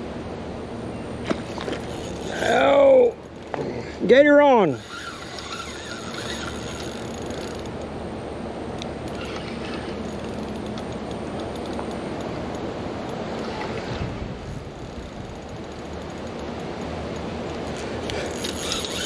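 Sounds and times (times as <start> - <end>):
fishing reel ticking and whirring: 1.7 - 3.2, 4.3 - 7.9, 9.0 - 13.6, 14.6 - 19.0.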